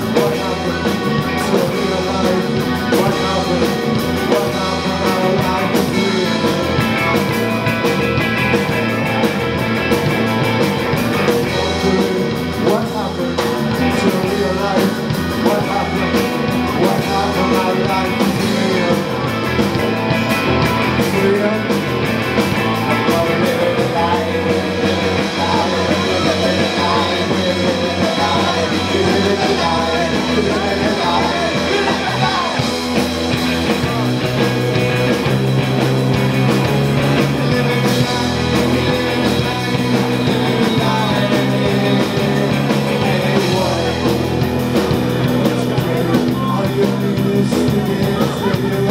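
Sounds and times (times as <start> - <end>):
person singing: 0.0 - 35.4, 36.2 - 48.9
bass guitar: 0.0 - 48.9
distorted electric guitars: 0.0 - 48.9
drum kit: 0.0 - 48.9.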